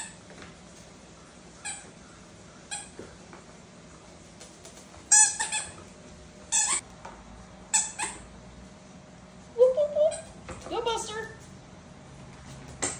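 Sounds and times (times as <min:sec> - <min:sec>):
squeaky toy ball squeaks: 0:05.1 - 0:05.8, 0:06.5 - 0:06.8, 0:07.7 - 0:08.3.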